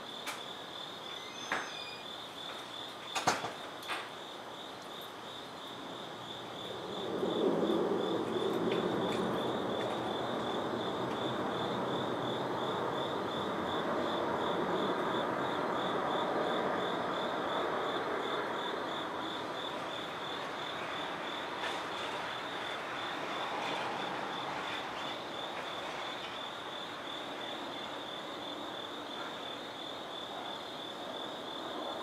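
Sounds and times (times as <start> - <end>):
crickets chirping: 0.0 - 32.0
wash of distant noise: 5.7 - 32.0.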